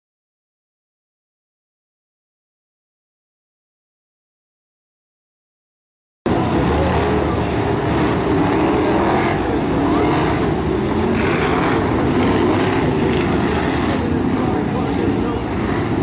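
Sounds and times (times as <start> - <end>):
racing car engines revving: 6.3 - 16.0.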